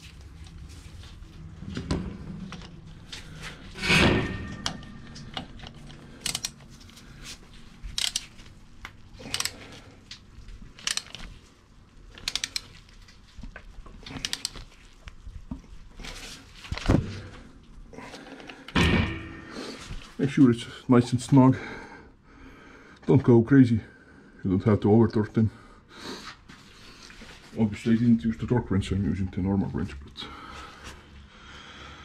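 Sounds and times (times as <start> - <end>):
wrench clicks and metallic knocks: 4.5 - 6.6, 7.9 - 8.3, 9.3 - 9.6, 10.8 - 11.2, 12.2 - 12.7.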